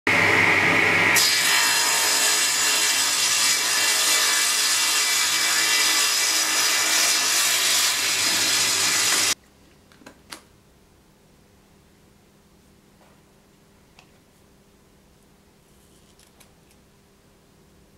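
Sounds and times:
table saw cutting wood: 0.1 - 9.4.

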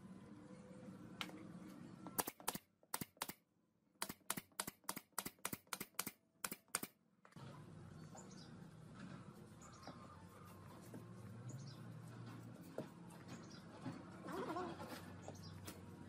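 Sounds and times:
nail gun firing: 2.2 - 3.4, 4.0 - 7.0.

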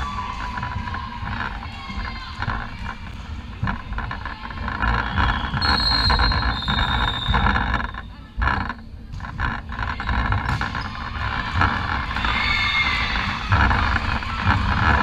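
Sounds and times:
rumble of players and spectators: 0.0 - 15.0
high squeaking tone: 5.0 - 8.2.

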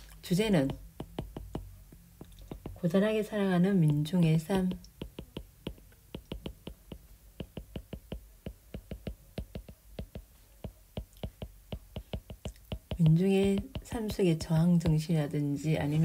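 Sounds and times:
stylus tapping on glass screen: 0.5 - 15.1.

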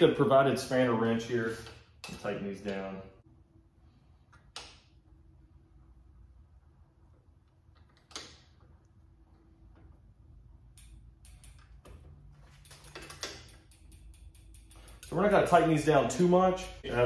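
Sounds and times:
pedal spanner click: 10.7 - 15.3.

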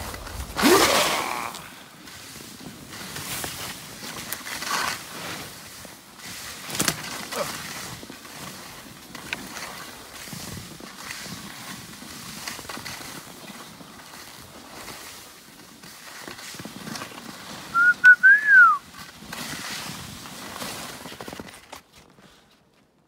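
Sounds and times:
sliding over snow: 0.0 - 22.6
loud whistle: 17.7 - 18.8.

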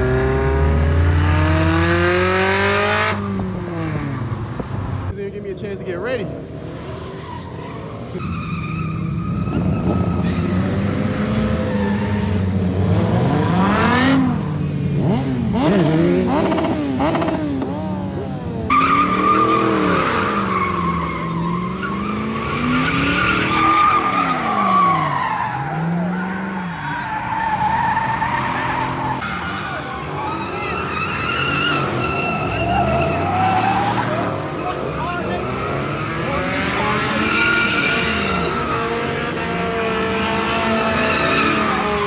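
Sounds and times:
car engine revving: 0.0 - 5.1, 8.1 - 42.0
tires squealing: 6.7 - 42.0.

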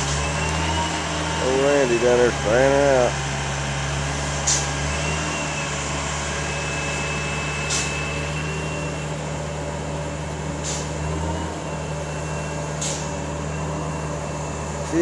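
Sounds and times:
machinery humming: 0.0 - 15.0
faint high whistle: 6.4 - 9.1.

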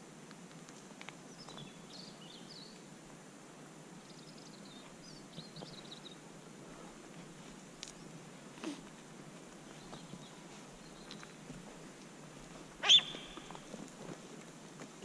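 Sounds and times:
steady background hiss: 0.0 - 15.0
songbird twittering: 12.8 - 13.7.

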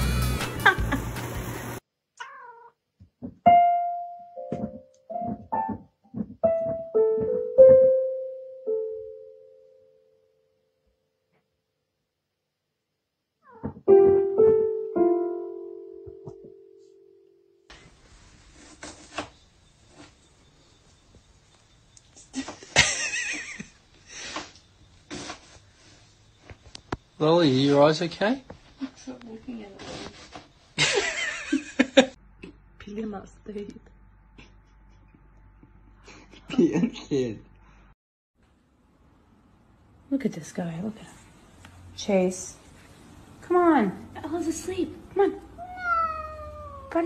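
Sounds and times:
cat crying: 2.2 - 2.8, 13.4 - 13.8, 45.6 - 47.0
keyboard notes: 3.5 - 10.7, 13.9 - 17.7
paw thud on keys: 4.4 - 8.0, 13.6 - 14.7
faint rustling: 28.4 - 30.8.

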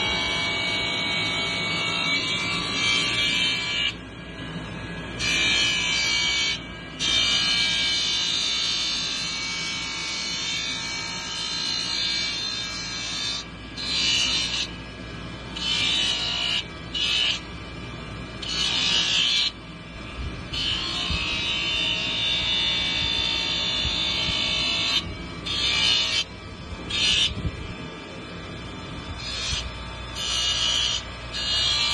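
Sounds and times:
grinder motor running: 7.6 - 31.9.

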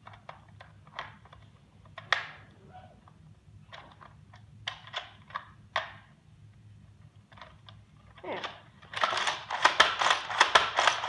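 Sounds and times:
plastic toy clicks and snaps: 3.7 - 6.1, 8.4 - 11.0.

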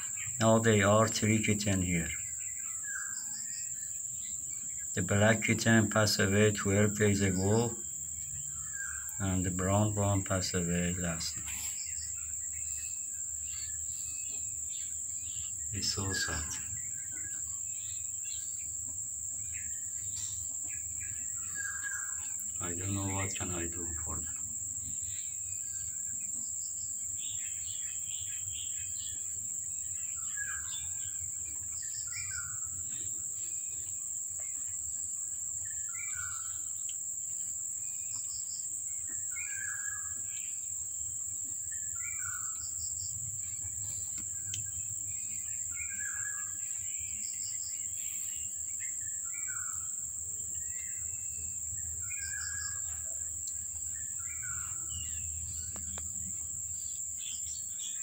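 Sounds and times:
bird calling: 0.0 - 26.3, 38.0 - 40.7, 41.6 - 58.0
high insect drone: 0.0 - 58.0.

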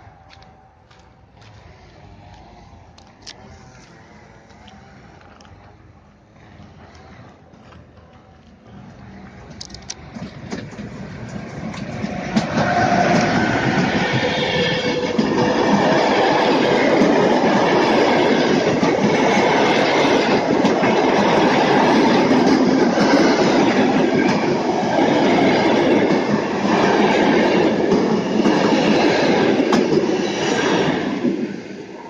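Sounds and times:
train wheels rumbling on rail: 0.0 - 32.0
wheelsets clattering over rail joints: 9.5 - 13.4.

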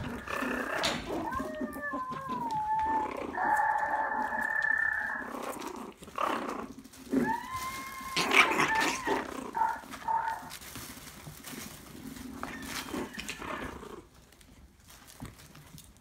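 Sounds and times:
puppies whining: 0.0 - 10.6, 11.9 - 14.1
scuffling: 0.0 - 16.0
puppies yipping: 7.1 - 10.7, 12.2 - 13.8.

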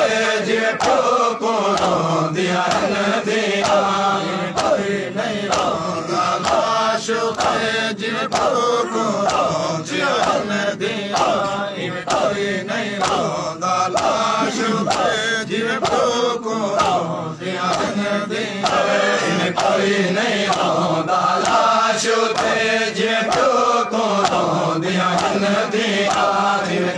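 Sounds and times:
lead reciter chanting: 0.0 - 26.9
men chanting in unison: 0.0 - 26.9
chest-beating slaps: 0.7 - 10.5, 11.1 - 17.1, 17.7 - 18.0, 18.6 - 19.8, 20.5 - 20.8, 21.4 - 26.4.

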